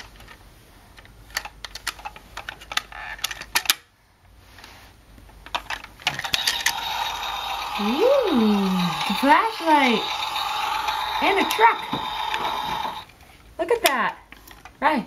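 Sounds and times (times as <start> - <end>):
plastic toy clicking and knocking: 1.3 - 3.9, 5.4 - 13.1.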